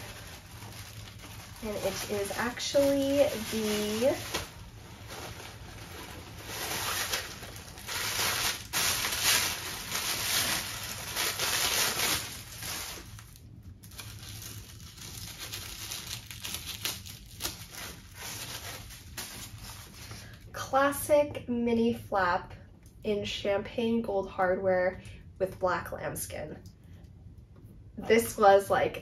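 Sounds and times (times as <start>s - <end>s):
packaging rustling and crinkling: 0.0s - 20.4s.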